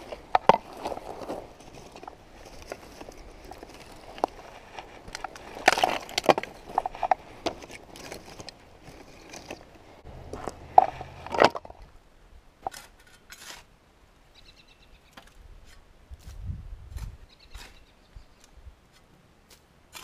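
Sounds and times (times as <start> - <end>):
rotten wood snapping: 2.6 - 8.6.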